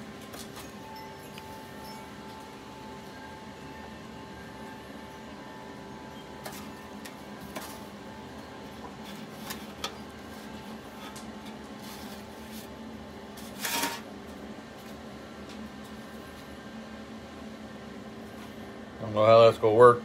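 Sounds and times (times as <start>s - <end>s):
steady low hum: 0.0s - 20.0s
scrape in metal pan: 13.4s - 14.1s.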